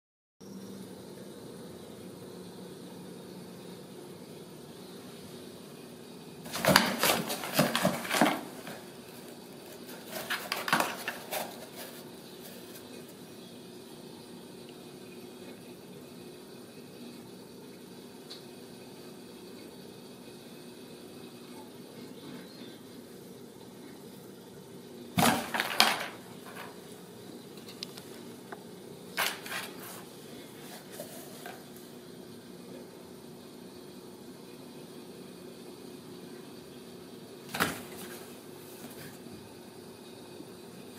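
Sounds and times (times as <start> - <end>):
kitten paws scrabbling on cardboard: 6.5 - 8.8, 9.8 - 12.8.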